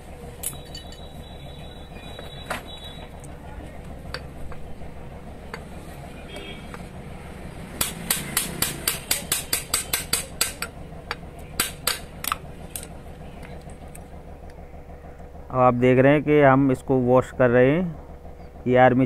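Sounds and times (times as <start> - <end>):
metal-on-metal tapping: 7.8 - 12.9.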